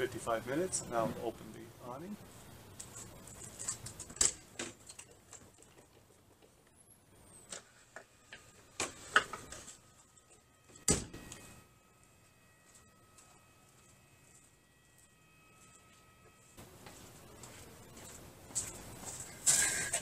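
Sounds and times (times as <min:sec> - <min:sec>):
door shutting with a thump: 0:10.8 - 0:11.3.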